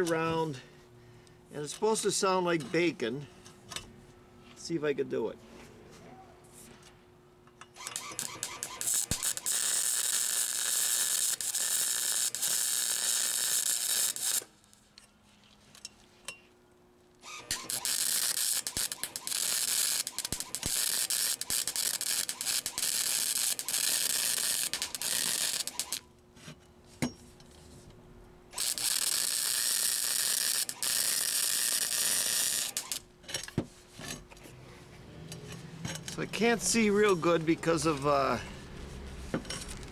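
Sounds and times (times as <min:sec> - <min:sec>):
welder crackling sizzle: 0:08.0 - 0:14.5, 0:17.5 - 0:26.0, 0:28.6 - 0:33.0.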